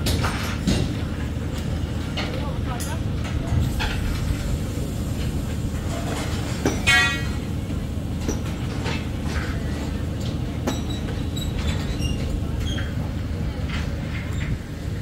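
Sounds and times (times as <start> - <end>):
low engine rumble: 0.0 - 15.0
sharp metallic knocks: 6.6 - 7.4.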